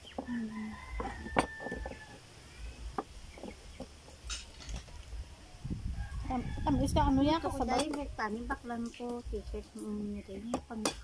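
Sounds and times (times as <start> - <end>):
knife and shells knocking on wood: 1.0 - 2.1.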